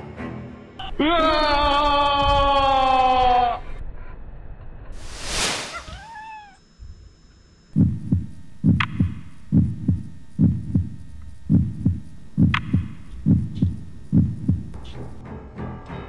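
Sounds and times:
heartbeat thumps: 7.8s - 15.2s.

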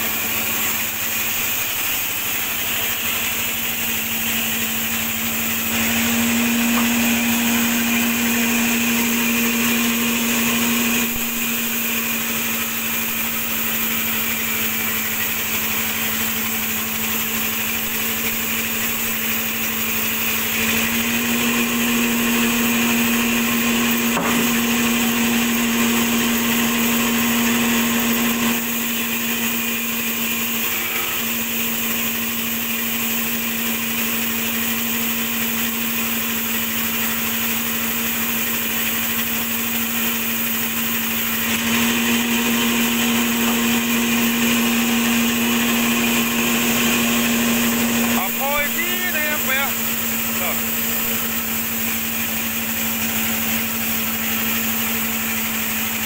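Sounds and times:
band saw sawing through log: 0.0s - 56.0s.

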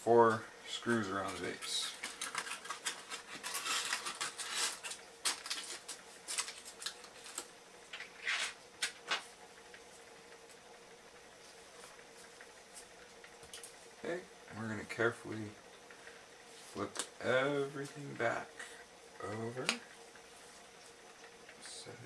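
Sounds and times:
faint steady hum: 0.0s - 22.0s
aluminium foil crinkling: 1.2s - 9.3s.

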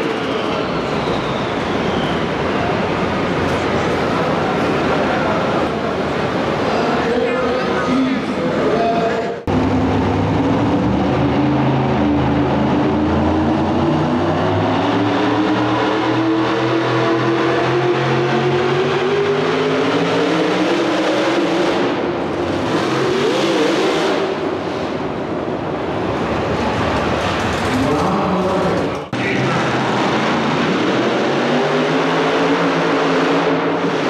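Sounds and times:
supercharged truck engine revving: 9.5s - 27.8s, 29.2s - 34.0s.

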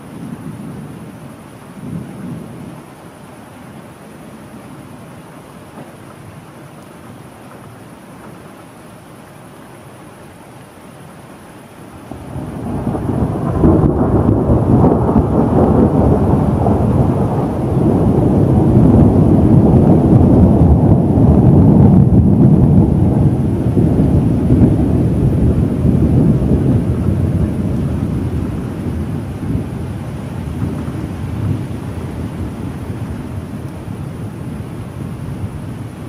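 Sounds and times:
thunder rumbling: 12.0s - 36.0s.

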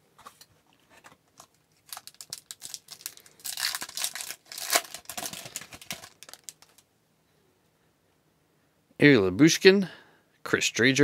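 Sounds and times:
wrapper crinkling and tearing: 1.4s - 6.8s.

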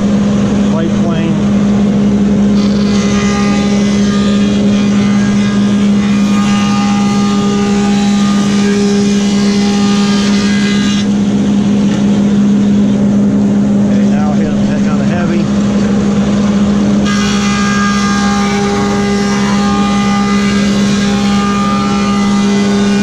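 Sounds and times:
planer motor hum: 0.0s - 23.0s
planer cutting wood: 2.5s - 12.4s, 17.0s - 23.0s.

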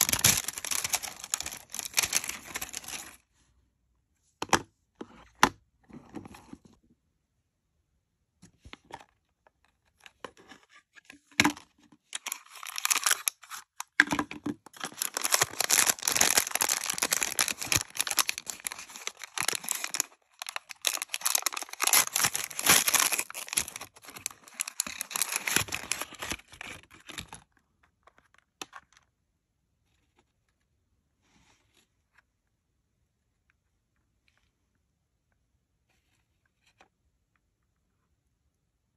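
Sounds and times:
wrapper crinkling and tearing: 0.0s - 3.2s, 12.2s - 13.9s, 14.6s - 27.4s.

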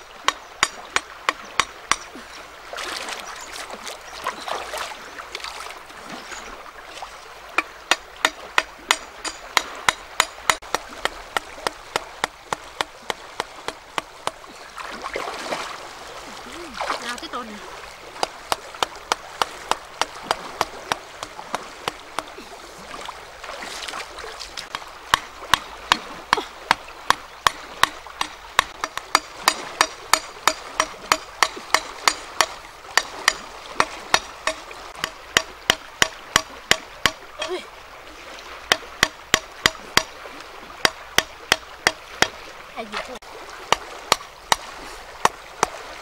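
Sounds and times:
running water: 0.0s - 46.0s.

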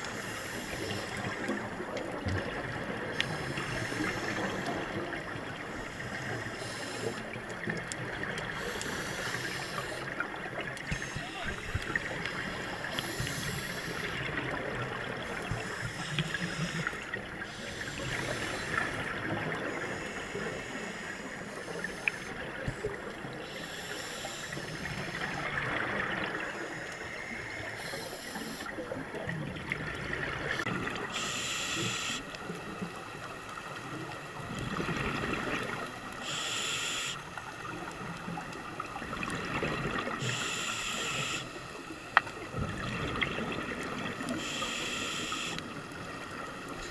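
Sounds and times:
steady watery hiss: 0.0s - 46.9s
regulator breaths underwater: 5.7s - 7.3s, 8.5s - 10.1s, 10.9s - 14.3s, 15.2s - 25.4s, 26.4s - 28.8s, 30.5s - 32.3s, 36.2s - 37.4s, 40.1s - 42.2s, 44.2s - 45.7s.

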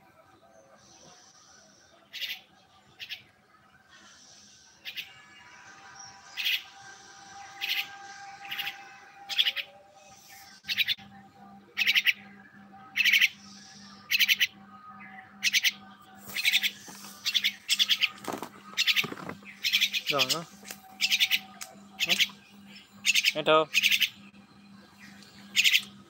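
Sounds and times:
steady low hum: 0.0s - 26.0s
myna chirping: 4.2s - 6.8s, 7.4s - 11.1s, 11.7s - 26.0s.

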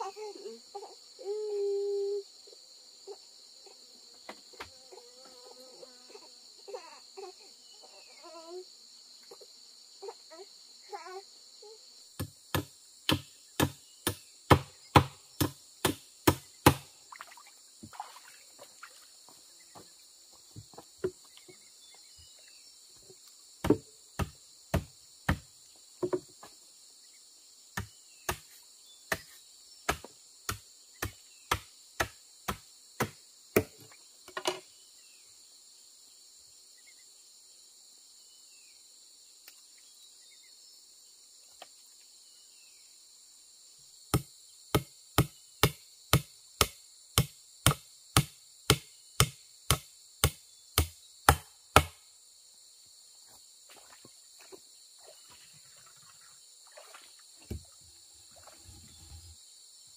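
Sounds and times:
insects chirring: 0.0s - 59.9s
sharp tool strikes: 12.2s - 16.8s, 44.1s - 52.0s.

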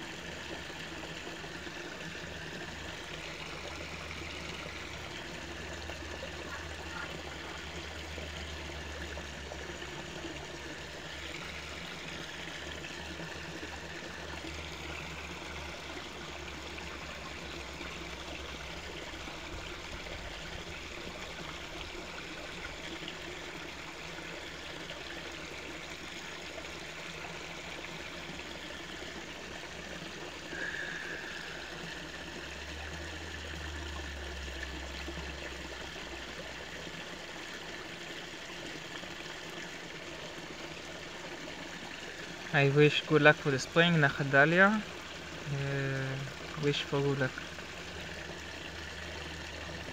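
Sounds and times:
stream water flowing and trickling: 0.0s - 49.9s.

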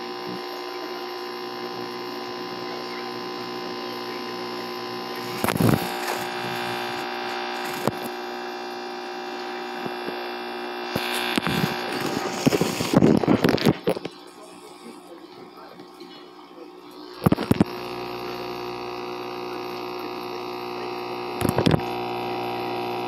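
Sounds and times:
aquarium pump humming: 0.0s - 23.0s.

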